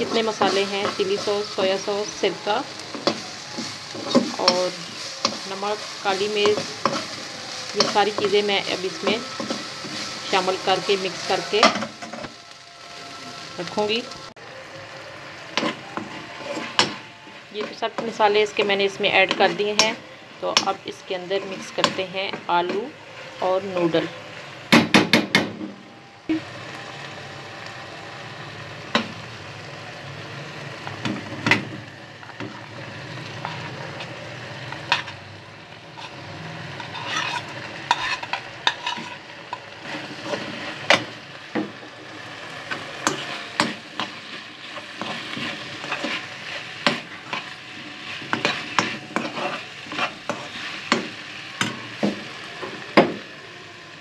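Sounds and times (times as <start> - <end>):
vegetables sizzling in oil: 0.0 - 54.0
spatula scraping and knocking pan: 2.8 - 10.9, 36.8 - 41.9, 42.7 - 53.2.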